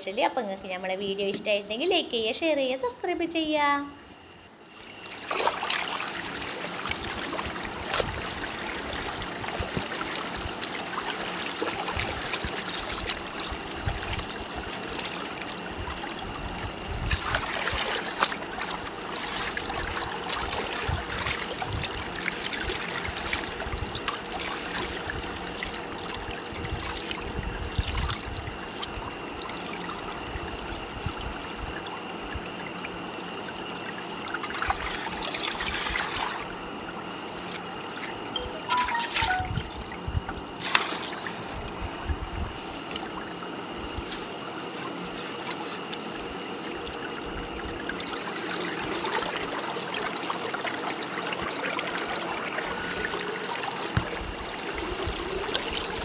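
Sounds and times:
stream running over pebbles: 0:05.0 - 0:16.1, 0:17.0 - 0:28.8.

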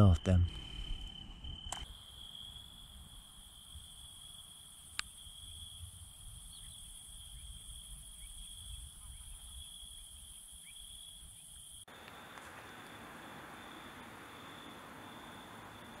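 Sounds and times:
crickets trilling: 0:00.0 - 0:16.0
high insect song hiss: 0:00.0 - 0:16.0
sharp click: 0:01.7 - 0:01.9.

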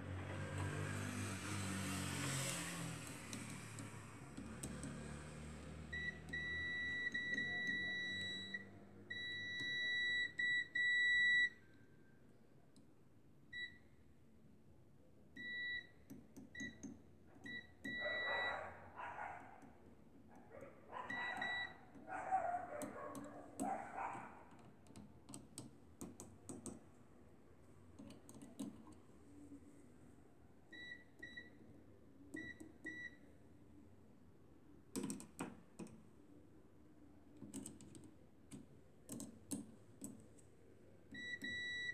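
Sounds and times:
multimeter beeping: 0:05.9 - 0:11.6, 0:17.5 - 0:18.6, 0:21.1 - 0:21.8, 0:41.1 - 0:41.9.

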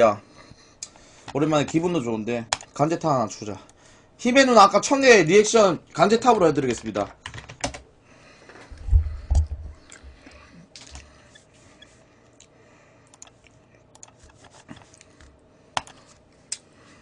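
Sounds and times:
keyboard typing and clicking: 0:06.8 - 0:07.8, 0:13.1 - 0:14.9.

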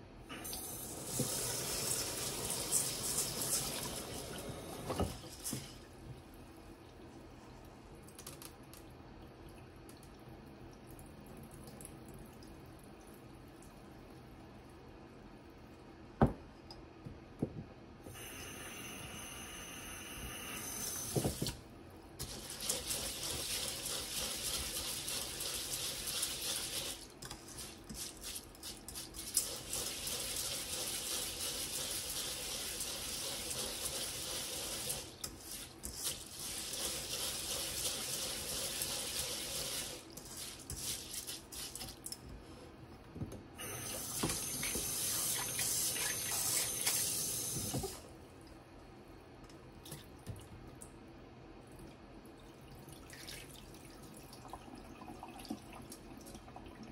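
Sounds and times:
rice being washed by hand: 0:22.2 - 0:42.0.

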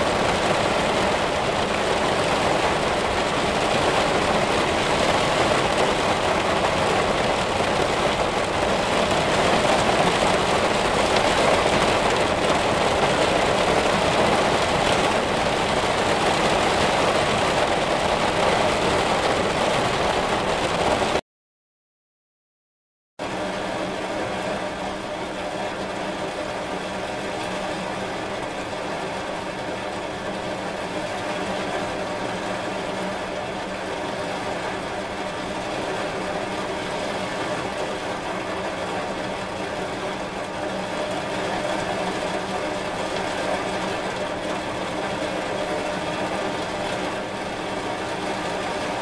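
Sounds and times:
steady rain hiss: 0:00.0 - 0:21.2.

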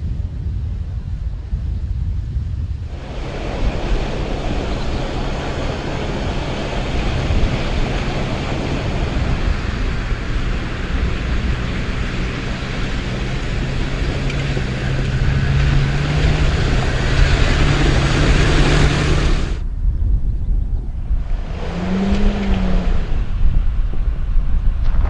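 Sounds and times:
heavy rushing wind-like noise: 0:00.0 - 0:25.0
truck engine running under load: 0:02.9 - 0:19.6.

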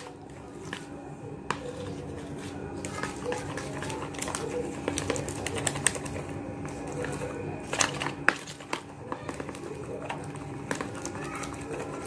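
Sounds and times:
spoon scraping a plastic bowl: 0:00.0 - 0:12.0
dove cooing: 0:01.6 - 0:08.3, 0:08.9 - 0:12.0.

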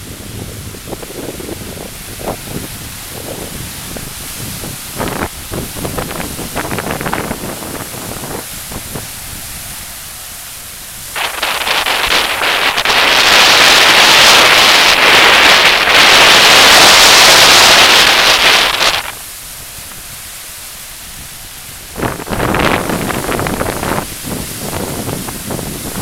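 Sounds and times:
gusty wind buffeting microphone: 0:00.0 - 0:20.4, 0:21.0 - 0:26.0
small waves breaking on shore: 0:00.0 - 0:26.0.

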